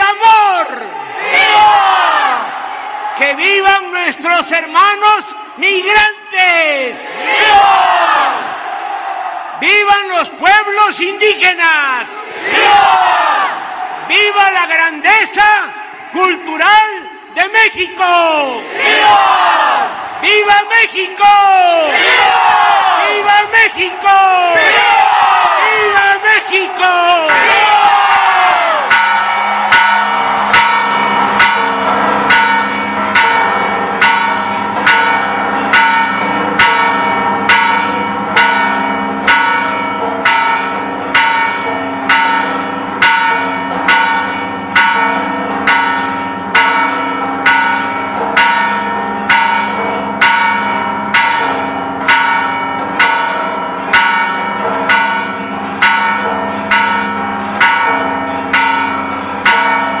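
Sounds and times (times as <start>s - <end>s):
bronze bell tolling: 28.9s - 60.0s.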